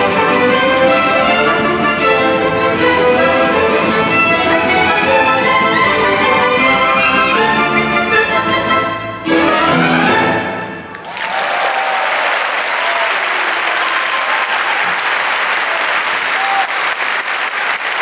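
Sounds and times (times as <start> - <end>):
band and orchestra playing: 0.0 - 11.0
audience applause: 10.9 - 18.0
audience shouts: 11.0 - 17.0.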